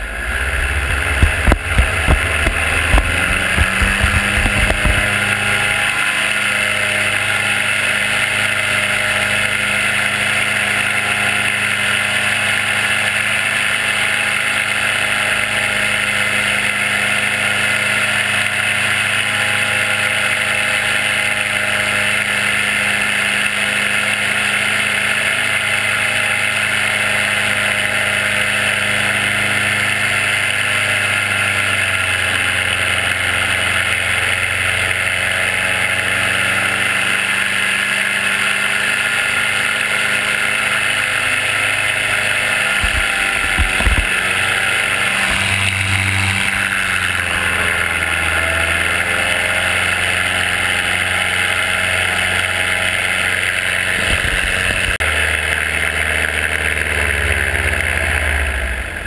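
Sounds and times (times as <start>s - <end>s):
paramotor engine and propeller: 0.0s - 59.0s
low thumps: 0.4s - 5.6s.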